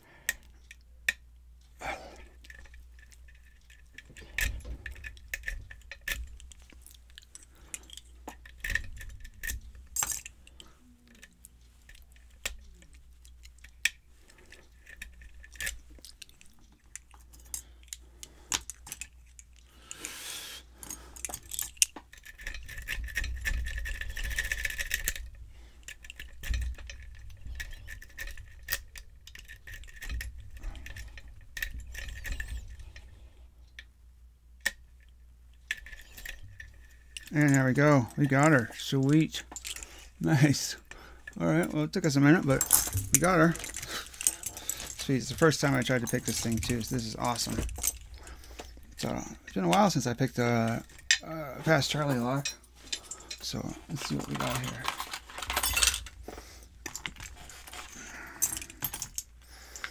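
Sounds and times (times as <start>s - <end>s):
pick scraping along pins: 35.7s - 59.9s.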